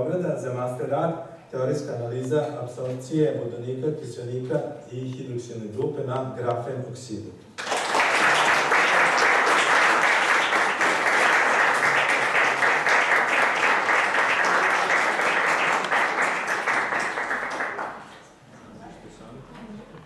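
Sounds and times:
audience applause: 7.6 - 18.1.

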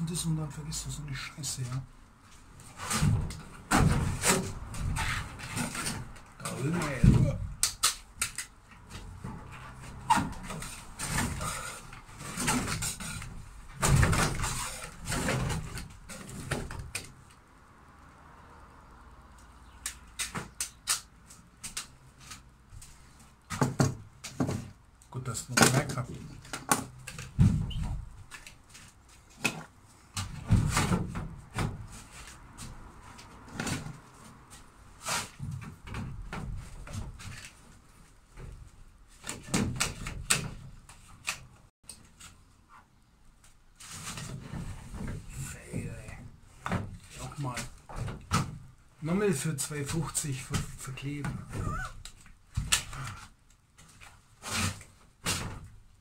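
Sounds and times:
hand tools and wood knocking: 19.4 - 55.8.

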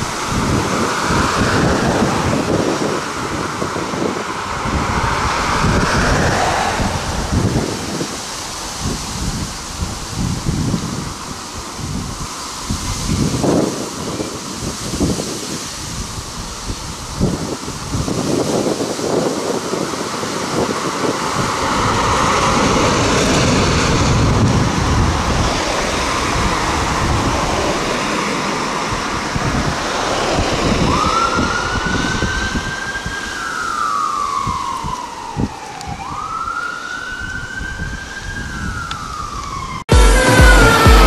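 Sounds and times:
ambulance siren wailing: 0.0 - 9.5, 17.2 - 41.0
traffic noise: 0.0 - 41.0
music: 39.9 - 41.0.

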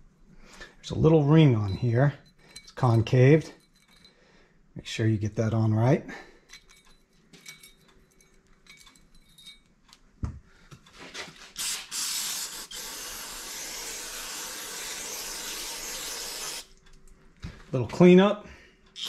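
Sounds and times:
metal parts clicking: 6.5 - 10.0
aerosol spray hissing: 11.6 - 16.7.

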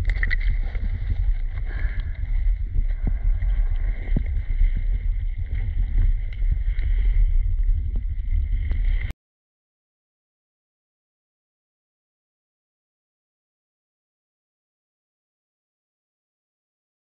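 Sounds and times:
small underwater clicks: 0.0 - 9.1
underwater low rumble: 0.0 - 9.1.

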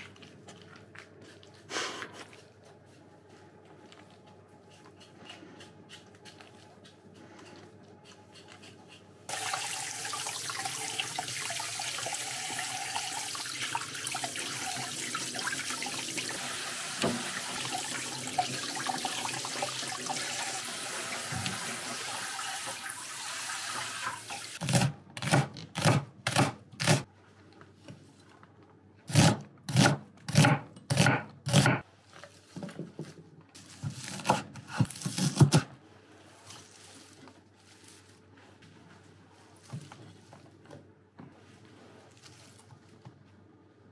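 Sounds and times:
knife chopping on wooden board: 29.1 - 31.8.

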